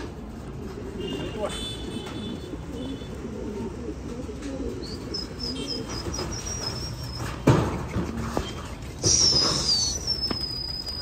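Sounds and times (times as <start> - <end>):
pigeons cooing: 0.0 - 11.0
high chirps: 9.0 - 11.0.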